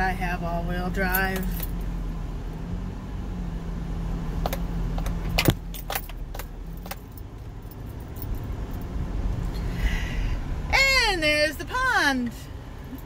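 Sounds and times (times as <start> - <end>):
car engine and tyres rumbling: 0.0 - 13.0
clinks and rattles in car cabin: 0.8 - 1.9, 4.4 - 8.9, 12.8 - 13.0.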